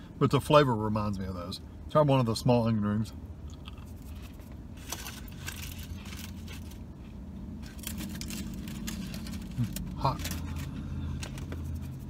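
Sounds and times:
steady low hum: 0.0 - 12.0
crunching and chewing onion ring: 3.5 - 12.0.

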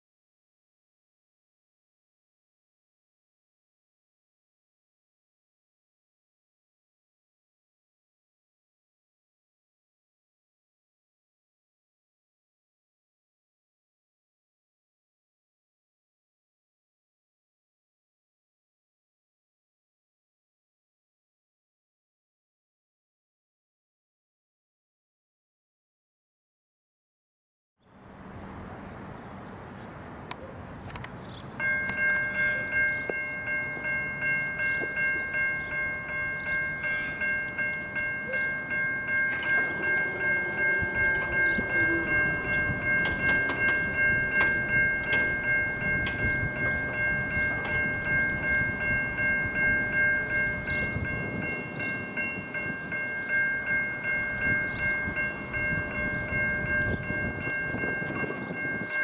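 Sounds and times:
electronic level crossing bells: 31.6 - 59.0.

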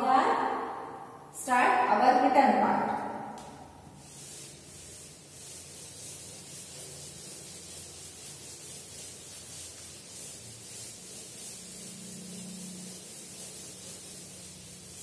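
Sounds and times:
duster rubbing chalkboard: 3.9 - 15.0.

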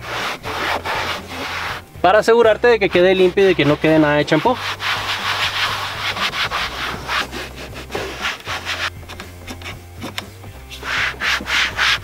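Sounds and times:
sponge swishing on plastic dashboard: 0.0 - 1.9, 3.0 - 9.0, 10.7 - 12.0.

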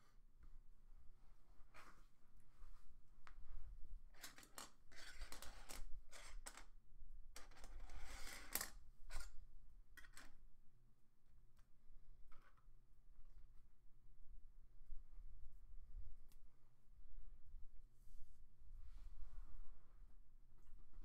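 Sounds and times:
rustling and scraping of handled objects: 1.5 - 6.8, 7.4 - 10.4.

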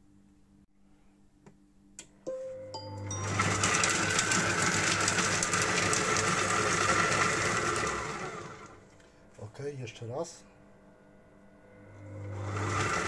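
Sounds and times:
food processor chopping: 3.2 - 8.8, 12.0 - 13.0.

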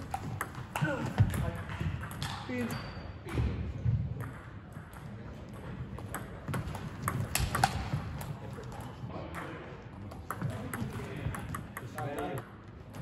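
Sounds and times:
table tennis ball clicking: 6.0 - 8.8.

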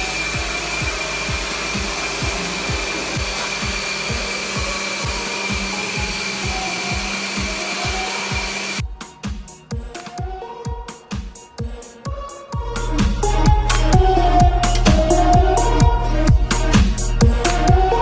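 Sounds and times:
pressure washer spraying: 0.0 - 8.8
background music with beat: 0.0 - 18.0.

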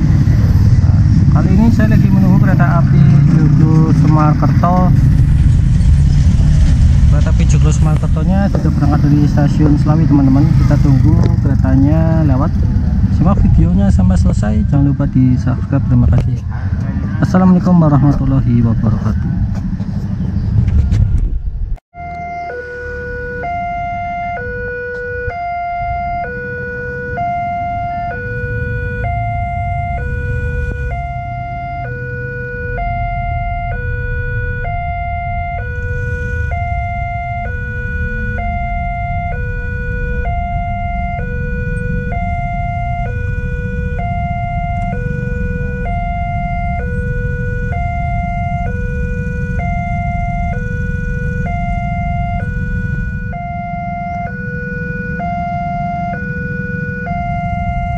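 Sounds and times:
steady low rumble: 0.0 - 21.8
two-tone level crossing siren: 22.0 - 57.9.

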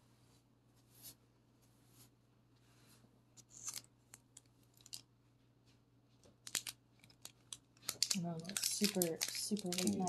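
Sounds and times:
foil pack crinkling: 6.4 - 10.0.

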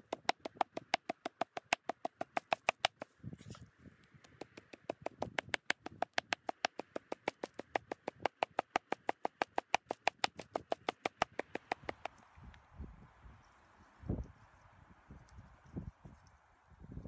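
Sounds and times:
cleaver chopping on wooden board: 0.0 - 3.0, 4.3 - 12.1.

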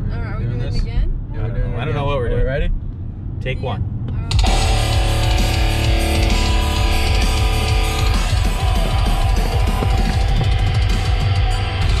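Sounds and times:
heavy metal music: 4.3 - 12.0.

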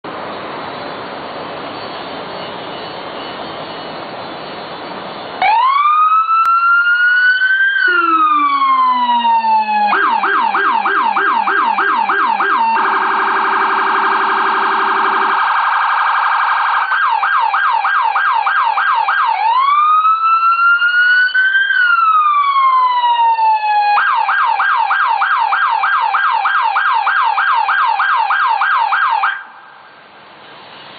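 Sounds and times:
deep low-frequency siren tone: 5.4 - 18.3
electronic siren wail and yelp: 5.4 - 29.6.

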